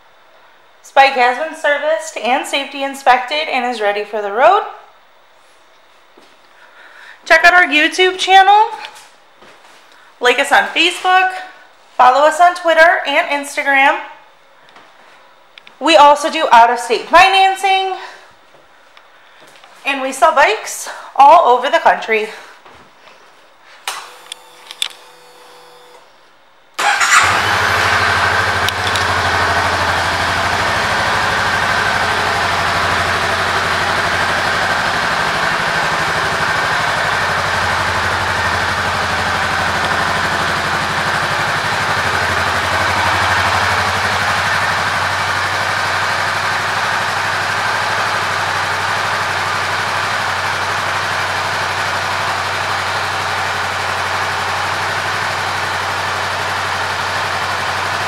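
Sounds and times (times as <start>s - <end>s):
motorcycle engine starting and idling: 26.8s - 58.0s.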